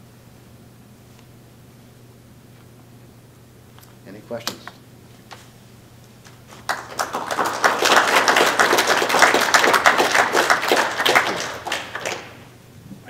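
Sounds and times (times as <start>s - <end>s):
audience applauding: 6.5s - 12.6s.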